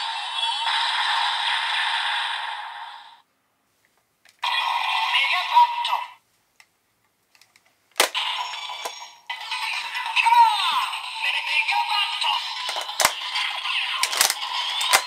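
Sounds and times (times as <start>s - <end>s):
toy electronic voice call: 4.4s - 6.2s, 8.3s - 15.0s
electronic music from toy speaker: 8.1s - 15.0s.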